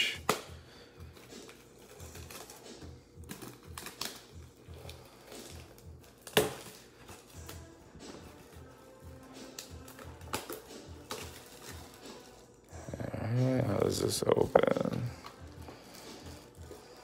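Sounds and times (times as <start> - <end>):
plastic shrink wrap crinkling: 1.0 - 13.4, 14.0 - 17.0.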